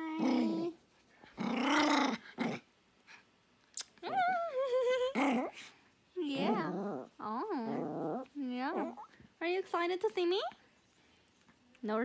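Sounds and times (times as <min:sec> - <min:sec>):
small dog grumbling: 0:00.0 - 0:00.8, 0:01.4 - 0:02.6, 0:04.1 - 0:09.1.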